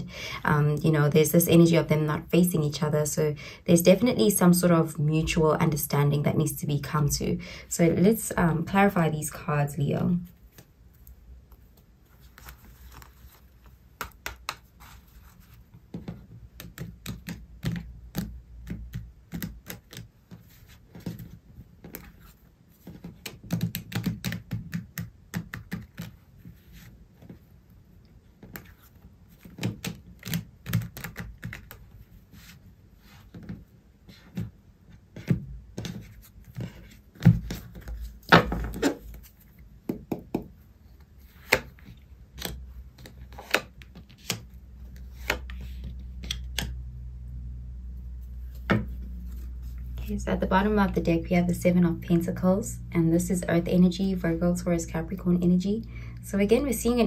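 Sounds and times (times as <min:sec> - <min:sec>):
cards being shuffled: 0:10.4 - 0:27.4, 0:28.4 - 0:33.6, 0:35.2 - 0:39.6, 0:41.0 - 0:46.7.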